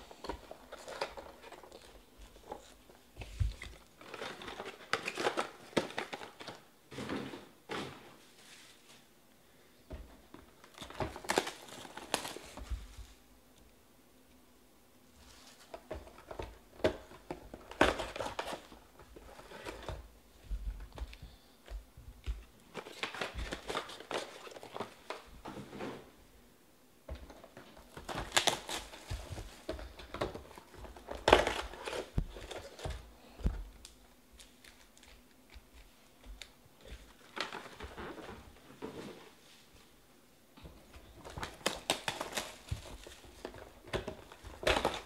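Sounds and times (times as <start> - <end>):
cardboard sliding and knocking: 6.9 - 8.9, 25.0 - 26.2.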